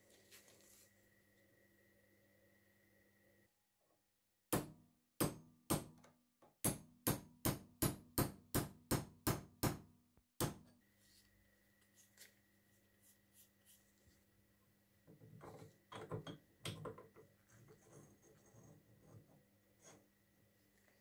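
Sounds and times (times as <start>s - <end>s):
hammer striking metal punch: 4.5s - 6.0s, 6.6s - 10.7s.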